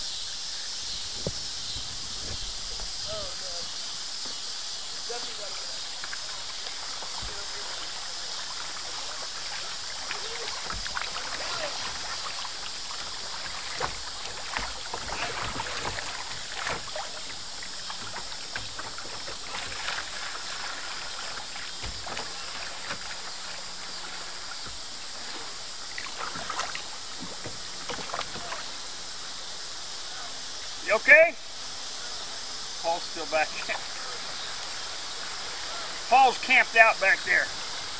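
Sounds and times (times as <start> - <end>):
river water rushing over rapids: 4.8 - 37.9
splashes and knocks on kayak hull: 6.0 - 28.8.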